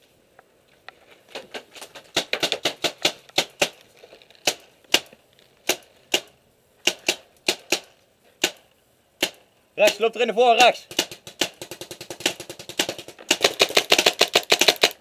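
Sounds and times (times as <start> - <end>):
paintball markers firing pops: 2.0 - 3.8, 4.4 - 10.1, 10.9 - 15.0.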